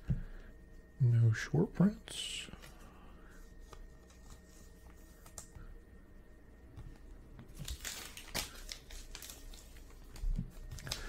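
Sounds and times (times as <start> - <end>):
card pack wrapper crinkling: 7.4 - 11.0.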